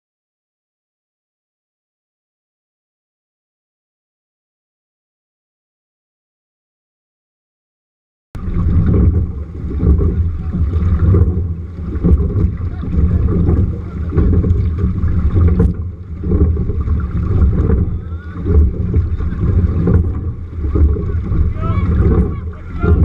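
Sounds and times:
water splashing along hull and oars: 8.4 - 23.0
wind buffeting microphone: 8.4 - 23.0.

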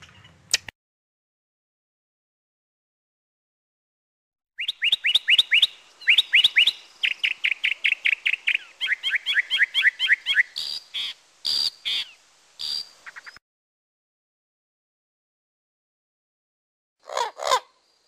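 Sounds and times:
mockingbird singing: 4.6 - 13.4, 17.0 - 17.8.

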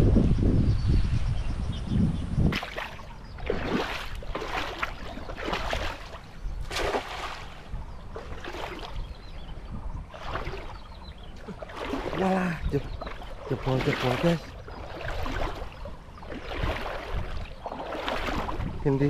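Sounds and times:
river water splashing: 2.5 - 19.0.

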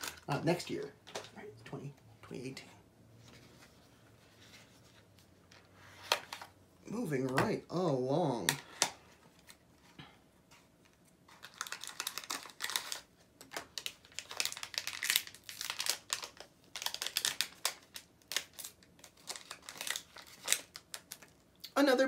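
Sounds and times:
packaging crinkling and rustling: 0.0 - 1.4, 10.6 - 21.6.

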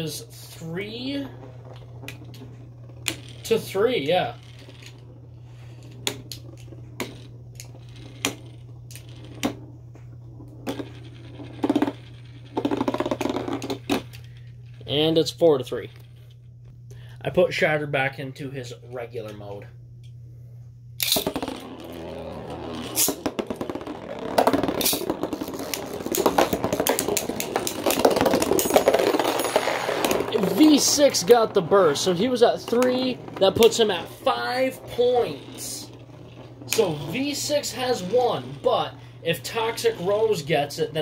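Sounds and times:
spinning tops clattering: 0.0 - 9.7, 21.0 - 41.0.

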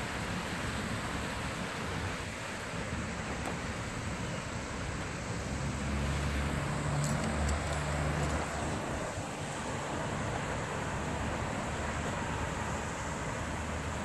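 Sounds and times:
steady background hiss: 0.0 - 14.0
vehicle passing hum: 5.2 - 12.4.

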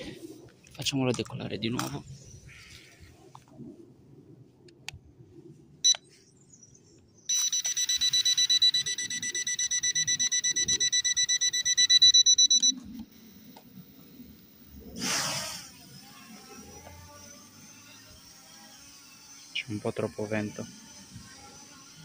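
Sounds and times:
rapid electronic beeps: 7.3 - 13.4.

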